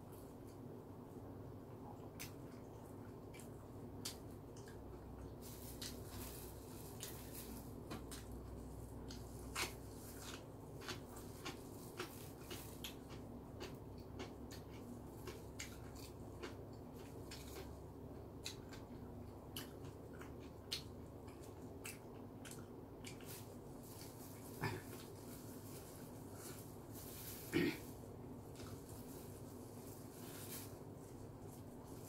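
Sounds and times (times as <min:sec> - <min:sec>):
person chewing: 0:02.0 - 0:06.0, 0:06.8 - 0:27.5.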